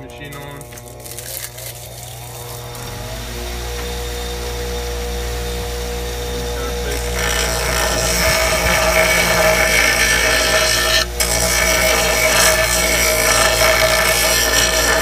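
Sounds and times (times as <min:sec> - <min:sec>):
machine motor hum: 0:00.0 - 0:15.0
compound rubbing on spinning wheel: 0:05.1 - 0:15.0.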